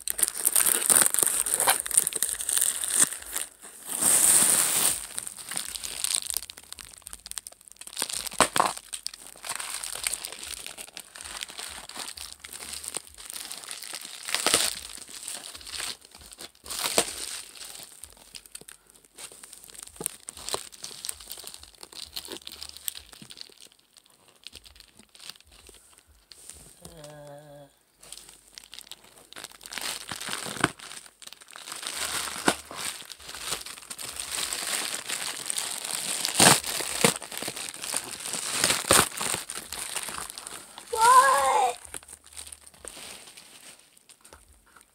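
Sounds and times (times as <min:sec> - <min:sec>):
gift wrap tearing and crinkling: 0:00.0 - 0:44.9.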